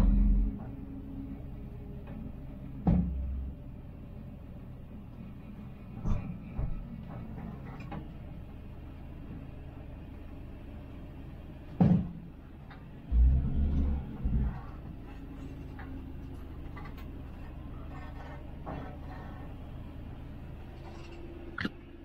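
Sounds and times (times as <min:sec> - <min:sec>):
engine running inside cab: 0:00.0 - 0:22.0
dull knocks and thumps: 0:02.8 - 0:03.3.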